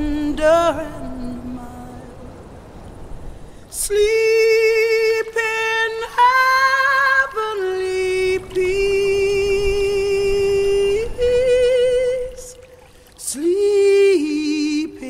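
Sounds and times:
high solo voice singing: 0:03.8 - 0:15.0.

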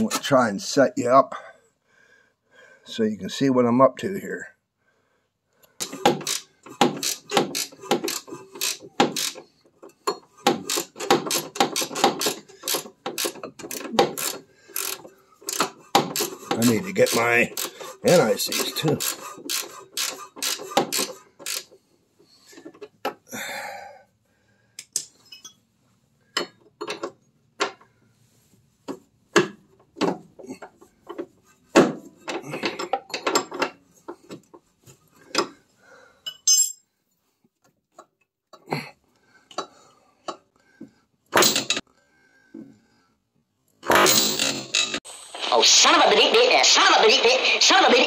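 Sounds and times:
ratchet clicking: 0:05.8 - 0:09.4, 0:10.5 - 0:16.4, 0:18.6 - 0:21.7
wrench clinking on metal: 0:24.8 - 0:25.6, 0:36.2 - 0:36.8.

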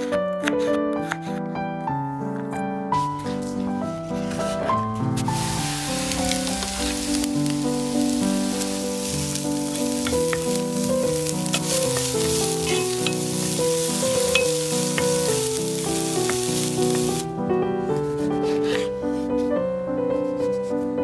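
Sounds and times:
piano-like melody: 0:00.0 - 0:21.0
food sizzling in oil: 0:05.2 - 0:17.3.

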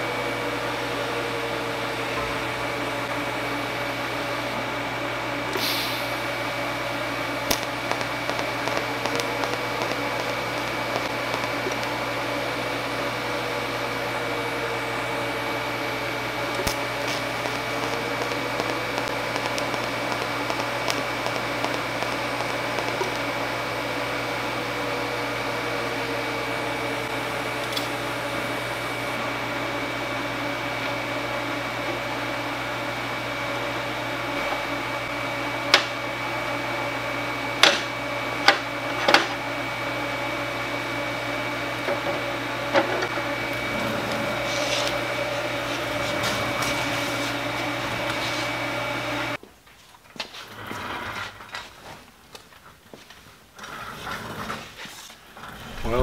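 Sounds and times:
faint high whine: 0:00.0 - 0:35.5
steady hum: 0:00.0 - 0:49.4
welding arc crackling and hissing: 0:00.0 - 0:49.4, 0:54.8 - 0:56.0
welding arc click: 0:07.4 - 0:13.8, 0:16.5 - 0:23.5, 0:27.6 - 0:28.0.

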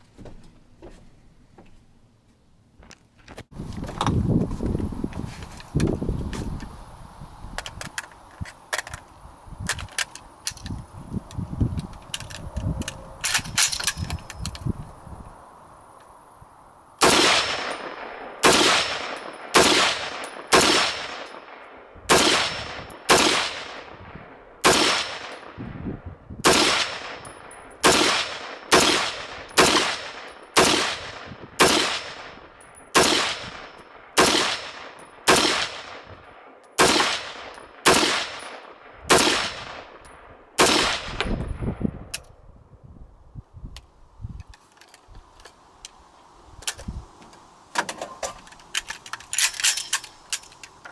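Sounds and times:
rifle rattling being handled: 0:02.8 - 0:06.7, 0:07.6 - 0:14.7, 0:44.4 - 0:46.0, 0:46.6 - 0:50.9
rifle shots echoing: 0:17.0 - 0:25.6, 0:26.4 - 0:41.2.

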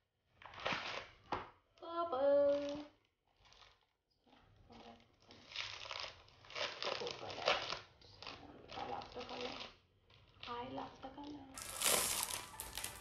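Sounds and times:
plastic wrapping crinkling: 0:02.4 - 0:03.9, 0:04.7 - 0:13.0.

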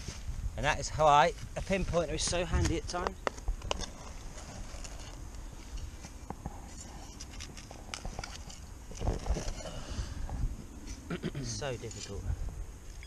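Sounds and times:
hand tool scraping dry soil: 0:03.6 - 0:09.9.

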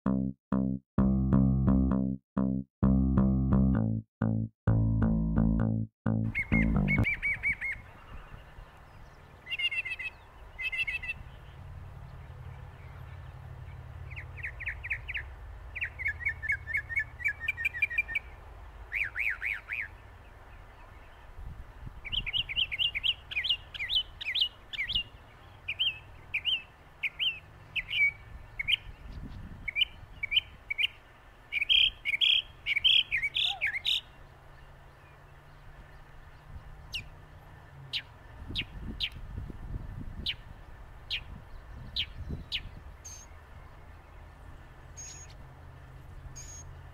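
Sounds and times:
mockingbird singing: 0:06.1 - 0:11.3, 0:18.9 - 0:20.0, 0:22.0 - 0:34.2.

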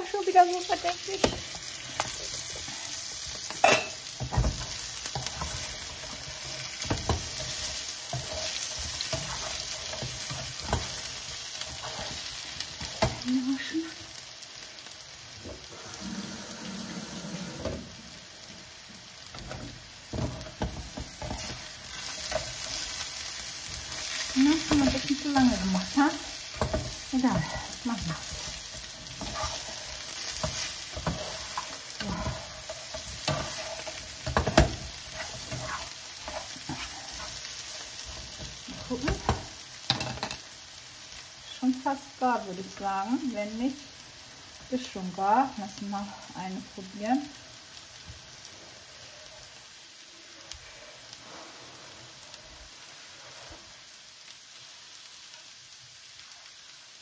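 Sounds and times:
potatoes sizzling in a frying pan: 0:00.0 - 0:57.0
spatula scraping a pan: 0:00.6 - 0:13.3, 0:19.3 - 0:40.5, 0:48.4 - 0:49.6, 0:50.3 - 0:53.8.

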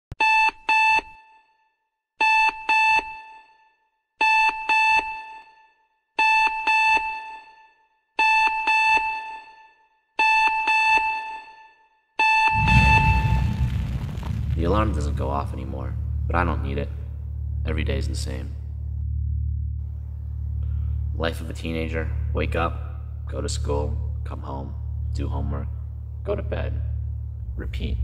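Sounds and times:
alarm clock beeping: 0:02.2 - 0:03.6, 0:08.2 - 0:09.6, 0:10.2 - 0:11.6, 0:12.2 - 0:13.4
deep low rumble: 0:12.5 - 0:28.0.

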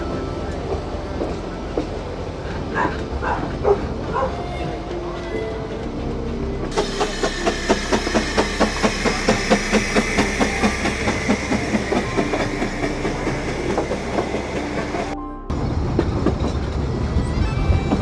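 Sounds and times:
steam train wheels clicking: 0:06.6 - 0:15.2
steam hiss: 0:06.7 - 0:15.2.

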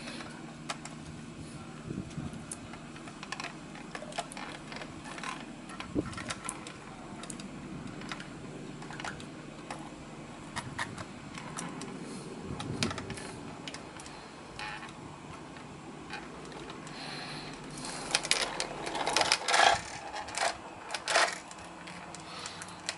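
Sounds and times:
toy truck clicks and rattles: 0:02.5 - 0:09.9, 0:12.6 - 0:15.0, 0:15.6 - 0:22.9.

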